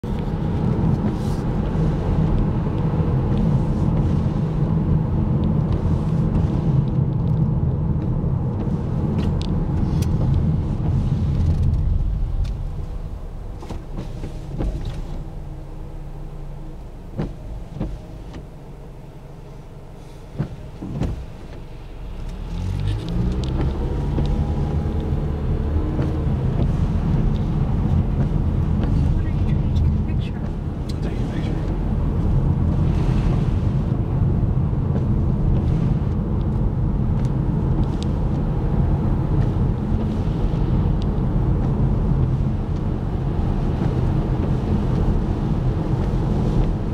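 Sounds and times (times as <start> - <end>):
car engine and tyre rumble: 0.0 - 46.9.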